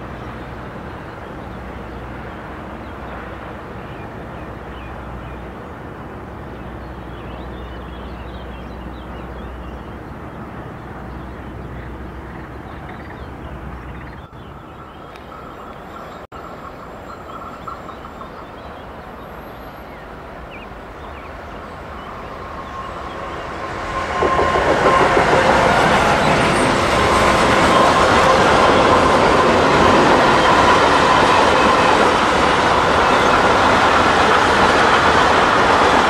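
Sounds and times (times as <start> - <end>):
freight train rolling: 0.0 - 36.0
small birds chirping: 6.6 - 16.3.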